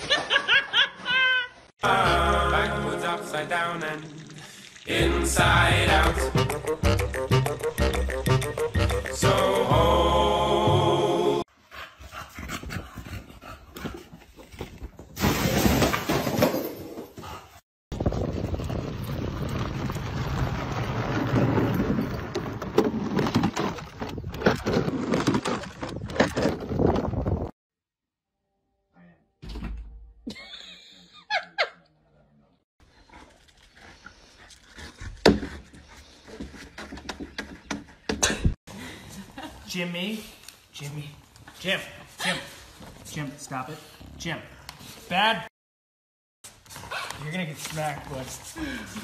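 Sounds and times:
crash of cardboard boxes: 15.1 - 17.1.

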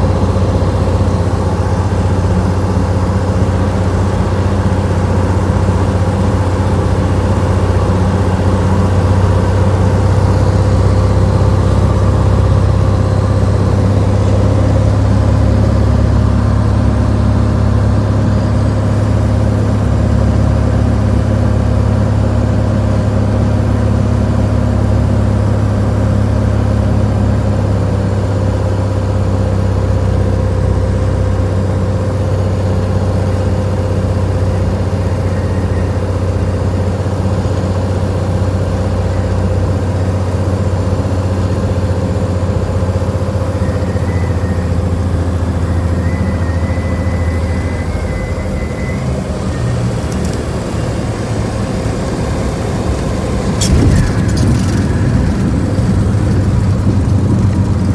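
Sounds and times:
light aircraft engine droning: 0.0 - 57.9
wheels touching down on runway: 45.7 - 57.9.

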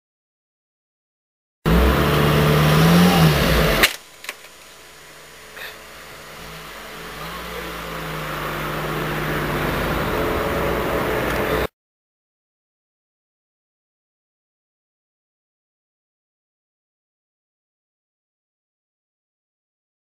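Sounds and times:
car engine revving: 1.7 - 11.7.

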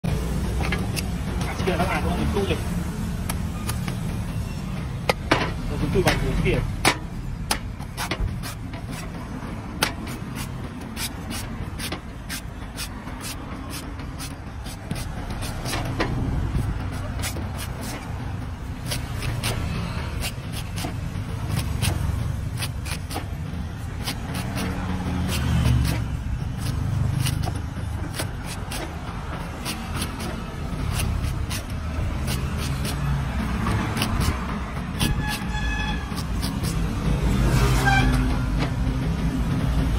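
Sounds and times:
cleaver chopping coconut husk: 6.0 - 18.2, 18.8 - 37.8.

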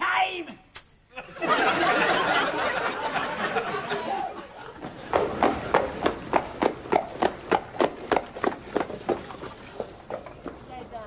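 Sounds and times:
footfalls: 4.8 - 10.7.

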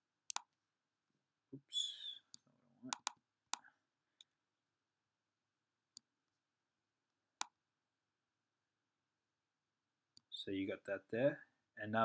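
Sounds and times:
computer mouse clicks: 0.3 - 0.6, 2.3 - 4.3.

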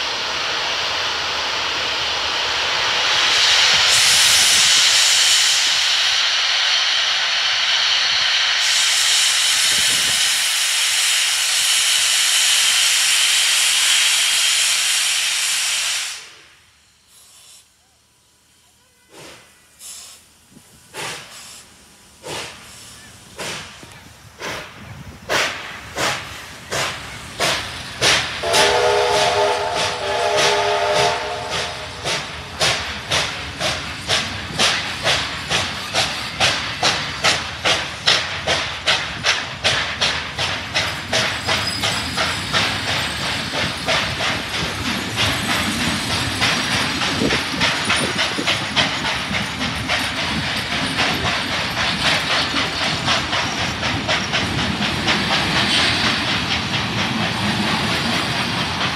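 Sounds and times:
steam hiss: 0.0 - 58.9
steam locomotive exhaust chuffs: 0.0 - 58.9
chime steam whistle: 28.4 - 32.3.

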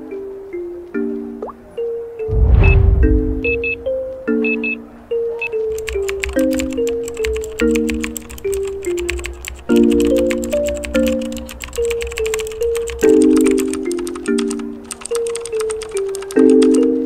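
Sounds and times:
gentle background music: 0.0 - 2.3, 2.9 - 17.0
computer keyboard typing clicks: 5.5 - 17.0.

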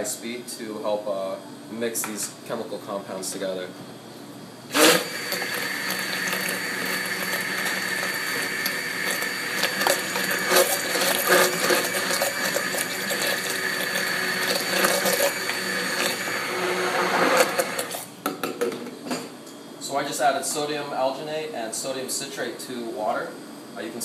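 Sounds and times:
immersion blender motor whine: 4.7 - 18.1.

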